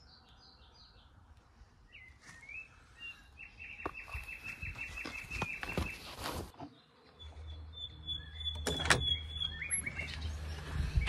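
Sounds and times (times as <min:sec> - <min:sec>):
small birds chirping: 0:00.0 - 0:11.0
wind rumble on microphone: 0:10.2 - 0:11.0.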